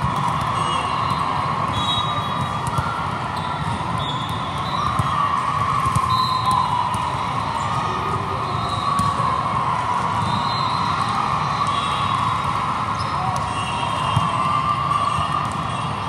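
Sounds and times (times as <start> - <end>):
many voices echoing in hall: 0.0 - 16.0
volleyballs thumping: 2.3 - 7.7.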